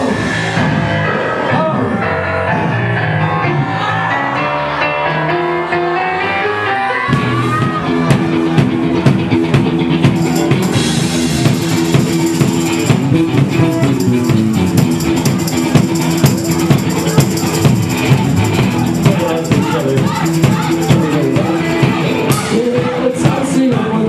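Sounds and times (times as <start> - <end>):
electric guitar: 0.0 - 24.0
keyboard: 0.0 - 24.0
live rock band playing: 0.0 - 24.0
drum kit beat: 7.2 - 24.0.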